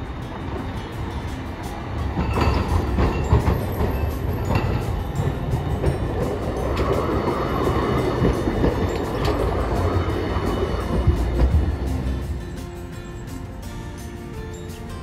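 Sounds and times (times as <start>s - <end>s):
tram wheels rumbling on rails: 0.0s - 15.0s
wheels clicking over track crossings: 0.0s - 15.0s.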